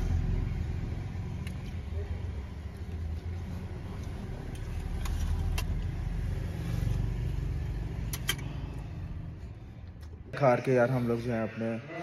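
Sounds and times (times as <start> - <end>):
car engine rumble: 0.0 - 10.4.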